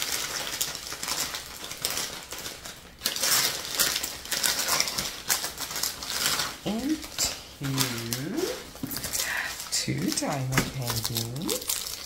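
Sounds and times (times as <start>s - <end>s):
wrapping paper crinkling: 0.0s - 12.0s.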